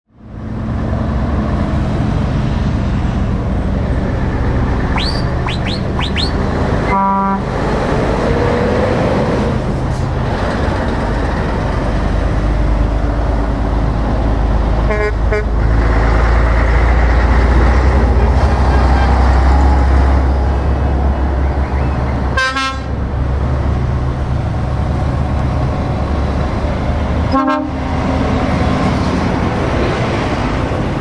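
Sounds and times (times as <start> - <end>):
trucks passing rumble: 0.1 - 31.0
quick rising whistles: 4.9 - 6.4
truck horn blasts: 5.0 - 7.6, 14.9 - 15.6, 18.6 - 19.4, 22.3 - 23.0, 27.3 - 27.8.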